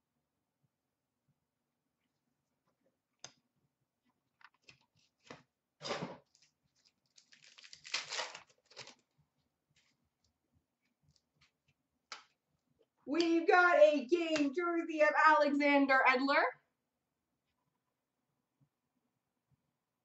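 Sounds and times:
pack wrapper crinkling and tearing: 6.3s - 9.2s.

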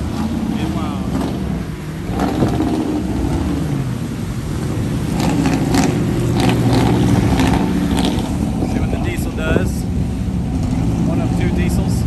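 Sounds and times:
truck engines revving: 0.0s - 12.0s.

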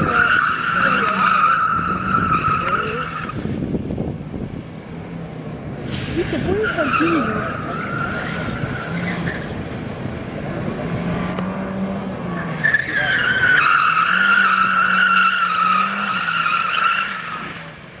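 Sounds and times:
tyres squealing: 0.0s - 3.6s, 5.9s - 9.7s, 11.0s - 17.8s
car engine holding revs: 0.0s - 18.0s.

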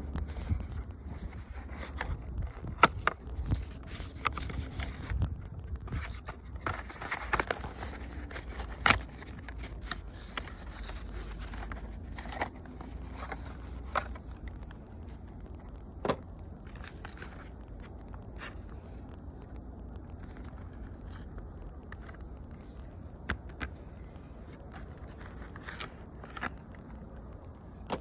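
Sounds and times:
wind rumble on microphone: 0.0s - 7.0s.

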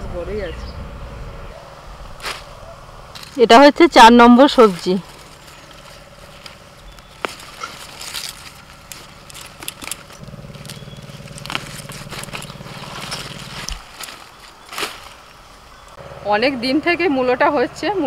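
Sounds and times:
low mechanical hum: 0.0s - 18.0s
radishes pulled from soil: 4.4s - 15.9s
soil clods pattering down: 4.6s - 15.4s.

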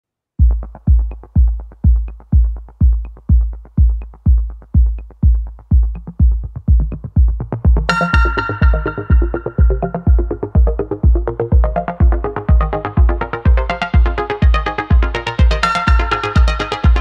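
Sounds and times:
low kick drum: 0.4s - 17.0s
hi-hat ticks: 0.5s - 17.0s
synthesizer melody: 6.8s - 17.0s.

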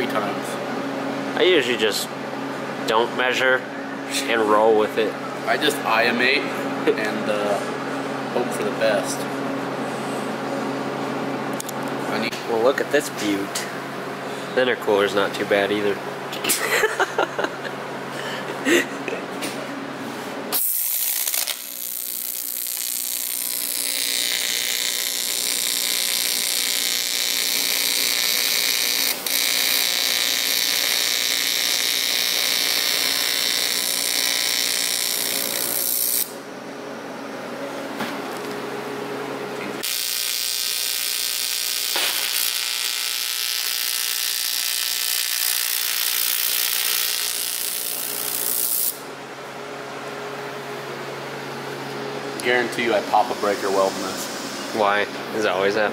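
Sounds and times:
welding arc buzzing and hissing: 20.5s - 36.4s, 39.8s - 49.1s.

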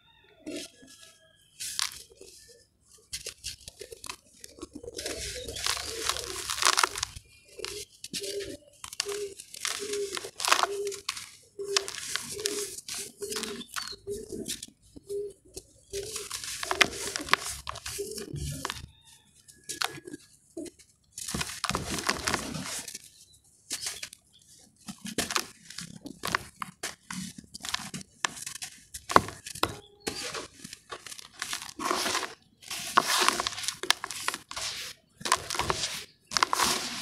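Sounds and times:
ash crunching and crumbling: 3.2s - 14.5s, 15.8s - 18.9s, 21.2s - 23.0s, 24.9s - 37.0s.

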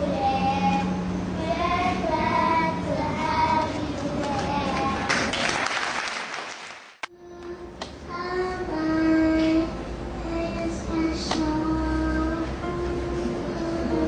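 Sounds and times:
children singing: 0.0s - 5.3s
applause: 4.7s - 7.1s.

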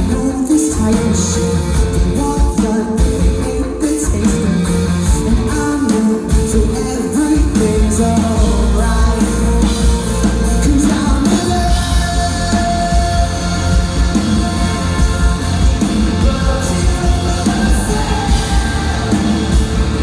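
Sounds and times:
bass guitar: 0.0s - 20.0s
drums: 0.0s - 20.0s
electric guitars: 0.0s - 20.0s
lead vocal singing: 0.0s - 20.0s.

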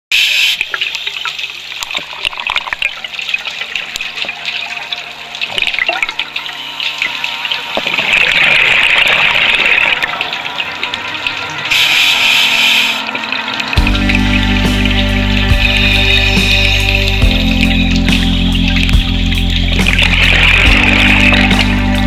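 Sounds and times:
watery hiss: 0.1s - 0.7s, 11.7s - 13.2s.

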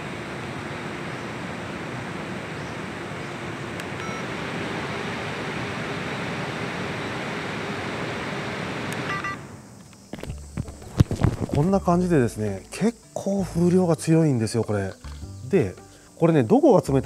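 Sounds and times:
faint motor hum: 0.0s - 16.2s
fan air rushing: 0.0s - 17.0s
device beep: 4.0s - 4.3s, 9.1s - 9.4s.

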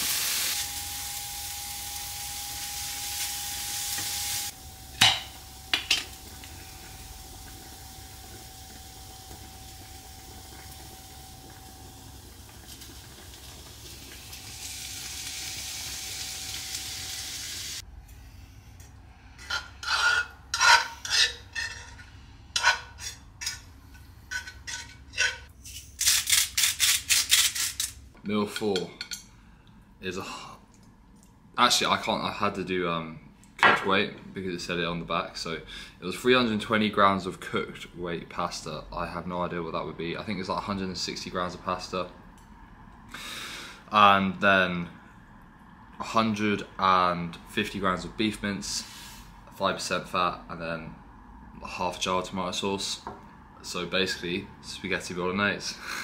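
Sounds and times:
meat sizzling in a frying pan: 0.0s - 17.8s
spatula scraping a pan: 19.4s - 23.7s.

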